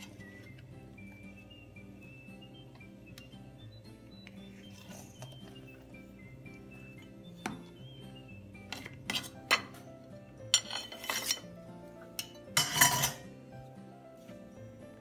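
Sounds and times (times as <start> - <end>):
background music: 0.0 - 15.0
cake server scraping on plate: 10.5 - 11.6.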